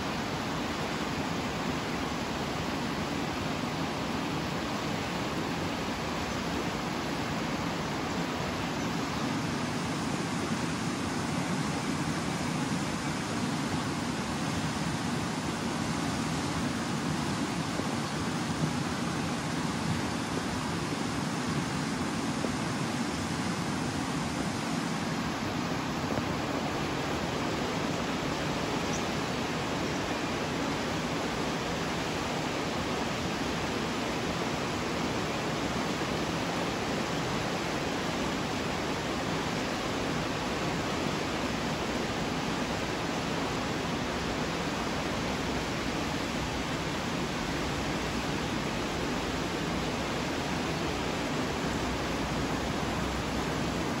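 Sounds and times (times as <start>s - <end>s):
river rushing over rocks: 0.0s - 54.0s.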